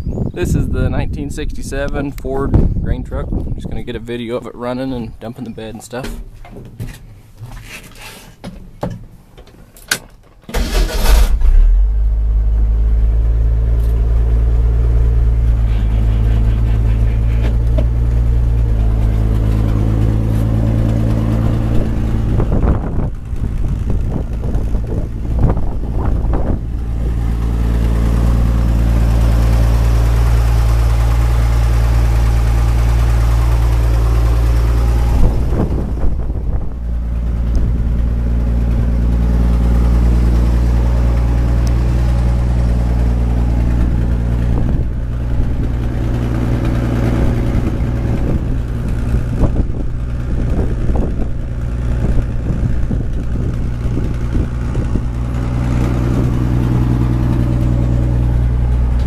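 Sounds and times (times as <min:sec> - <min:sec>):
truck engine starting and running: 0:00.0 - 0:59.0.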